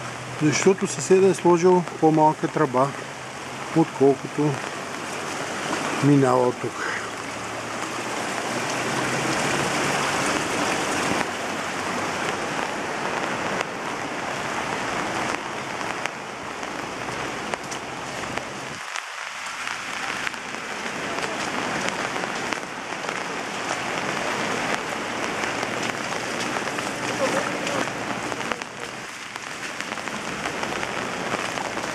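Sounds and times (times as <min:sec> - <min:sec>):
floodwater rushing and splashing: 0:00.0 - 0:31.9.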